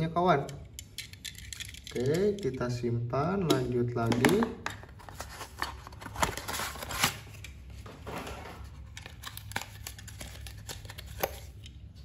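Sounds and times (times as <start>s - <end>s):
packaging crinkling and rustling: 4.1s - 11.6s.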